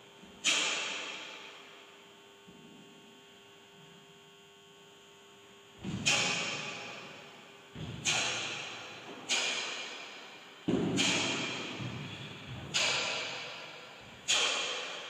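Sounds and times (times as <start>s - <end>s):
sharp snaps echoing in hall: 0.4s - 1.8s, 5.8s - 7.4s, 8.0s - 15.0s.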